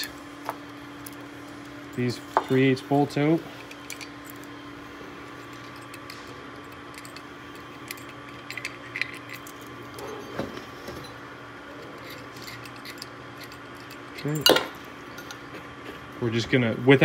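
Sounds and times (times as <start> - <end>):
steady low hum: 0.0 - 17.0
metallic clinks of bolts: 12.4 - 15.4.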